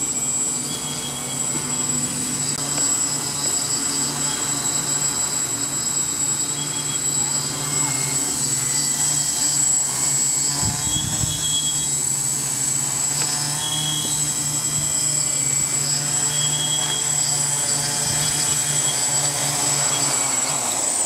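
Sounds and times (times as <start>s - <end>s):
quadcopter motors humming: 0.0s - 21.0s.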